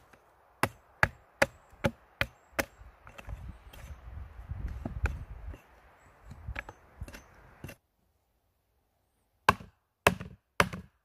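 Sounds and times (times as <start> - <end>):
hatchet chopping wood: 0.0 - 3.4, 9.5 - 11.0.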